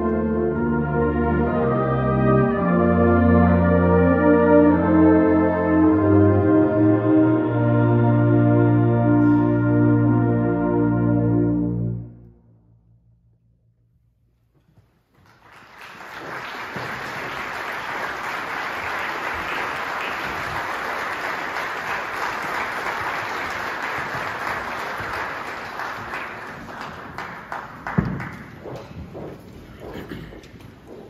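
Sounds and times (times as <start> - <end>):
audience applause: 15.2 - 28.7.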